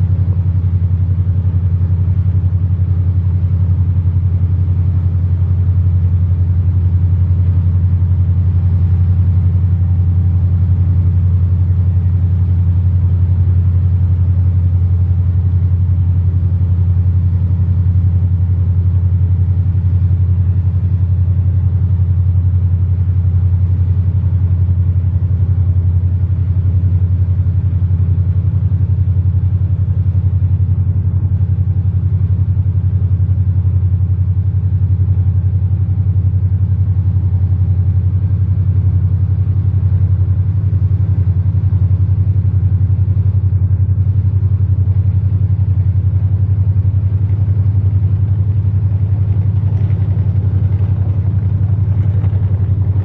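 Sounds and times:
boat engines low rumble: 0:00.0 - 0:53.0.

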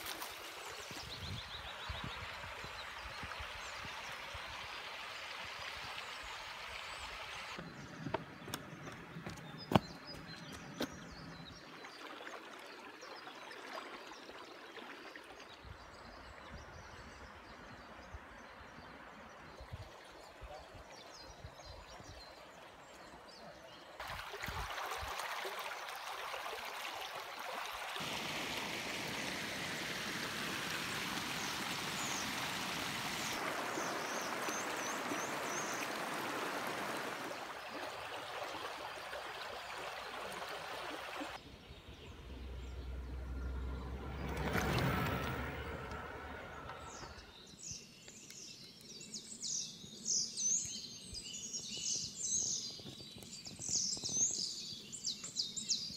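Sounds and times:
small birds chirping: 0:07.4 - 0:11.9, 0:41.4 - 0:55.9
low hum passing: 0:41.4 - 0:47.5.

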